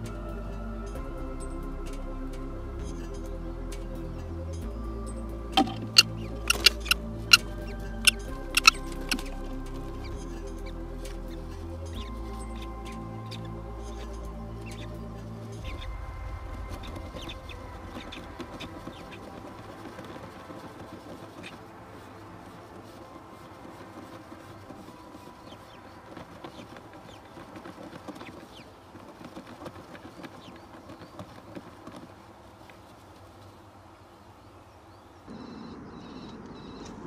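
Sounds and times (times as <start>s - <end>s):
chicks cheeping: 5.6s - 7.5s, 8.1s - 9.3s
rustling of feathers and wood chips: 5.6s - 35.4s.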